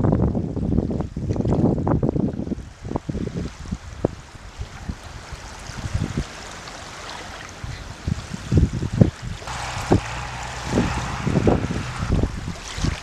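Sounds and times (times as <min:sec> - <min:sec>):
wind buffeting microphone: 0:00.0 - 0:06.4, 0:07.5 - 0:13.0
small waves lapping shore: 0:02.2 - 0:13.0
low steady hum: 0:09.4 - 0:13.0.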